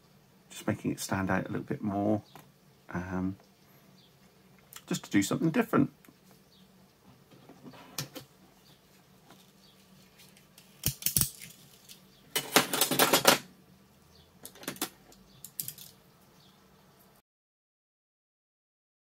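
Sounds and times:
small objects rattling: 10.1s - 13.4s, 14.4s - 16.0s
small hard objects clicking: 10.3s - 12.0s, 14.4s - 16.0s.

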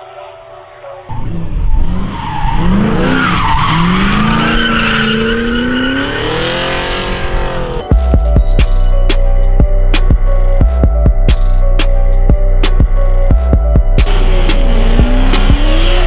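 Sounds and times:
car engine revving: 1.1s - 7.9s, 14.0s - 16.0s.

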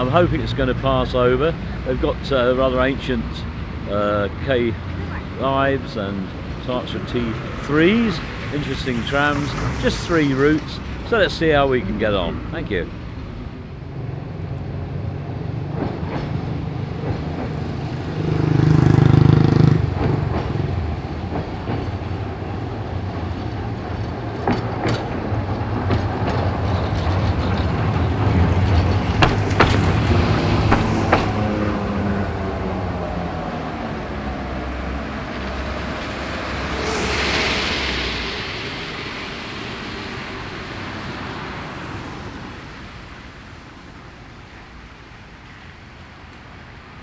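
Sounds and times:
tram rumbling past: 0.0s - 47.0s
cars hissing on wet road: 4.6s - 14.2s, 16.4s - 47.0s
wheels clicking on rails: 19.8s - 31.4s.

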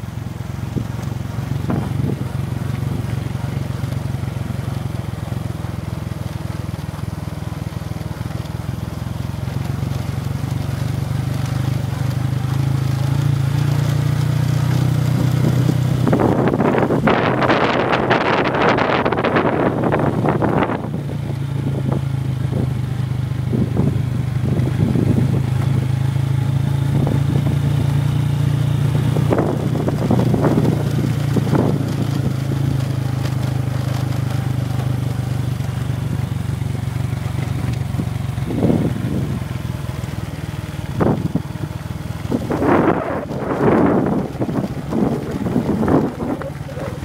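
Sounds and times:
small motorcycle engine running: 0.0s - 47.0s
wind buffeting microphone: 14.9s - 22.8s, 23.4s - 26.0s, 28.7s - 34.1s, 37.9s - 39.4s, 40.9s - 41.6s, 42.2s - 47.0s.

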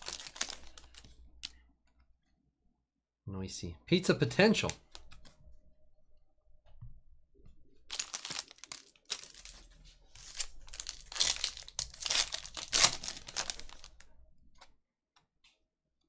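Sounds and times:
foil wrapper tearing and crinkling: 0.0s - 1.0s, 7.9s - 14.0s.

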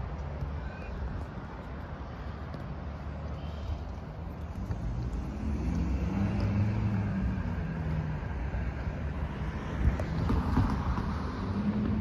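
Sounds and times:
low rumble of road traffic: 0.0s - 12.0s
vehicle engine: 0.0s - 12.0s.

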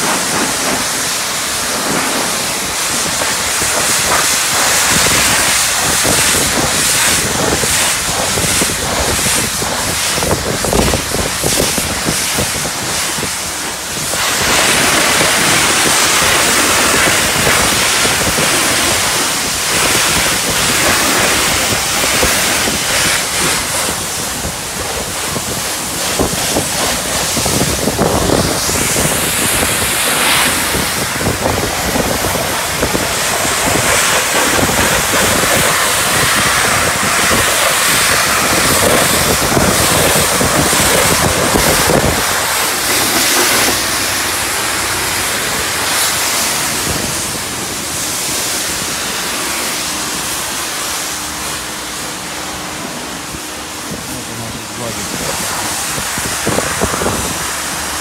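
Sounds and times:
high-pressure hissing spray: 0.0s - 58.0s.

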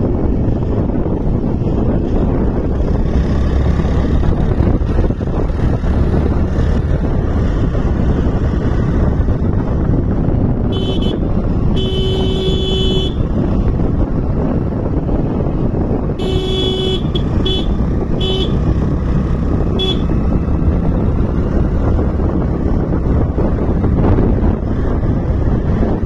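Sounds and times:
motorcycle engine running: 0.0s - 26.0s
wind rushing over microphone: 0.0s - 26.0s
vehicle horn honking: 10.7s - 13.3s, 16.1s - 18.7s, 19.7s - 20.2s.

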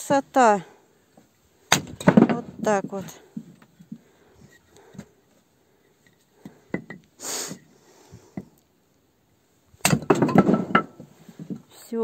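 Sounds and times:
wooden knocks of firewood: 1.2s - 4.1s, 6.4s - 7.1s, 9.8s - 11.7s
clatter of knocks and clinks: 10.0s - 11.6s.

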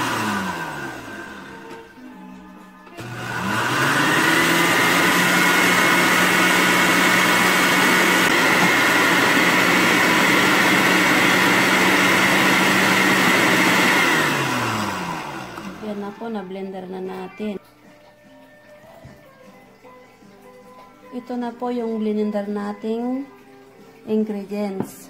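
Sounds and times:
blender motor whine: 0.0s - 2.1s, 3.0s - 16.8s.

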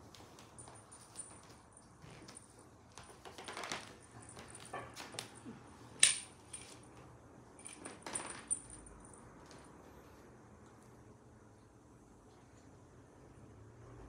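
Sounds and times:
metal clip clinking on wooden floor: 6.0s - 6.8s.

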